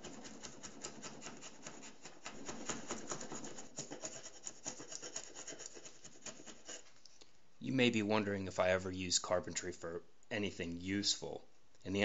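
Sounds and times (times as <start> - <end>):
chisel scraping wood veneer: 0.0 - 7.0.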